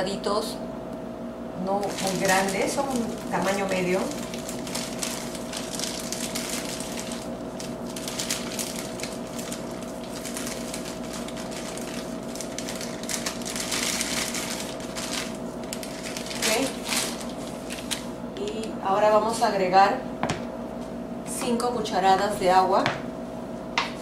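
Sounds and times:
steady hum: 0:00.0 - 0:24.0
plastic bag crinkling: 0:01.7 - 0:18.6.

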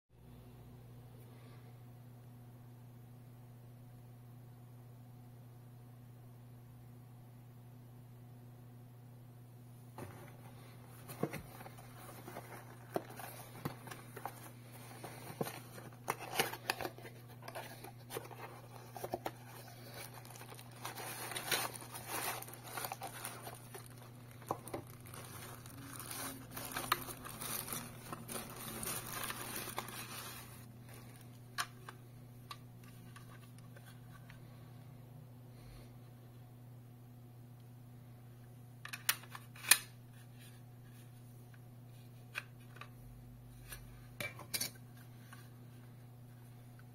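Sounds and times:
steady low hum: 0:00.2 - 0:46.9
wrapping crinkling: 0:11.0 - 0:31.4.

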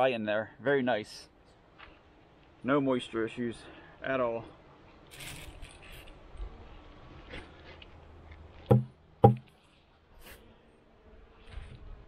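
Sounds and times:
hollow wooden knocks: 0:08.7 - 0:09.5.

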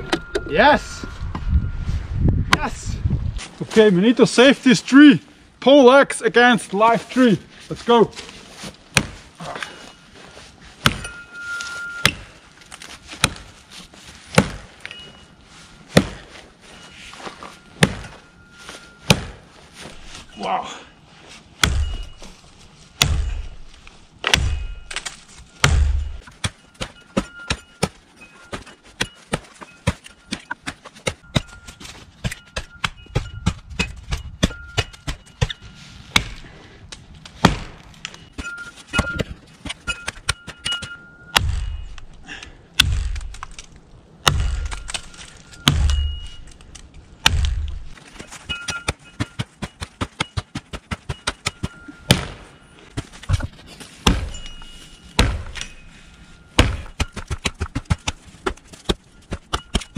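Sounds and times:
axe chopping into tree trunk: 0:08.9 - 0:09.2, 0:10.8 - 0:11.1, 0:13.2 - 0:13.5, 0:14.3 - 0:14.7, 0:15.9 - 0:16.3, 0:17.8 - 0:18.2, 0:19.1 - 0:19.4, 0:21.6 - 0:22.2, 0:23.0 - 0:23.5, 0:24.2 - 0:28.0, 0:37.4 - 0:37.8, 0:39.0 - 0:42.0, 0:42.8 - 0:43.5, 0:44.2 - 0:46.3, 0:47.2 - 0:52.4, 0:53.0 - 0:54.5, 0:55.2 - 0:55.7, 0:56.6 - 0:59.9.

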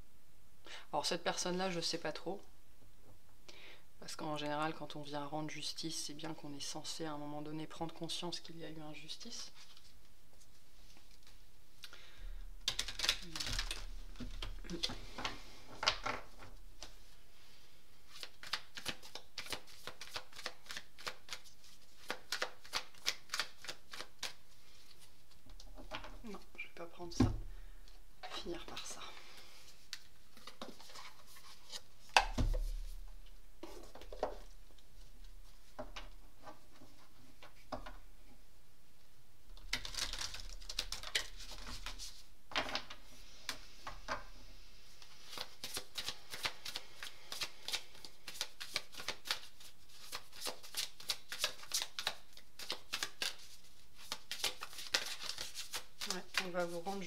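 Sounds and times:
cards rustling: 0:12.6 - 0:17.0, 0:18.1 - 0:25.4, 0:28.7 - 0:35.7, 0:39.6 - 0:43.6, 0:45.0 - 0:56.9.

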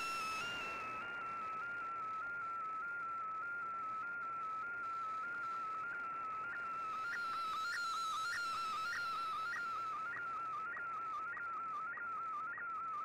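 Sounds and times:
background radio hiss: 0:00.0 - 0:02.2
wavering whistle-like tone: 0:00.0 - 0:12.0.

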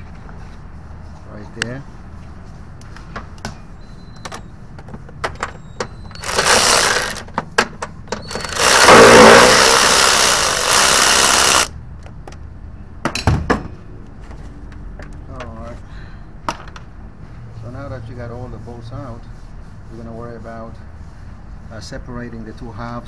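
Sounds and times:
power tool spinning out bolt: 0:06.1 - 0:07.4, 0:08.1 - 0:11.7
tool clicking and knocking on metal: 0:06.2 - 0:11.7.

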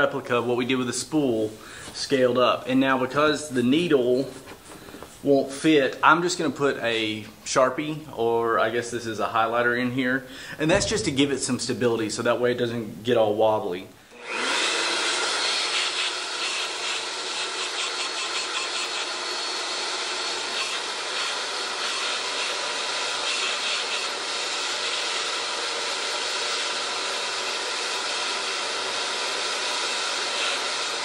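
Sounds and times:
electric leaf blower whine: 0:14.1 - 0:31.0.

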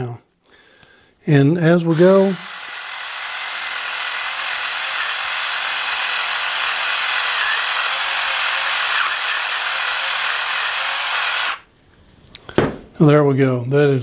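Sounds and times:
electric pepper grinder running: 0:01.9 - 0:11.6.

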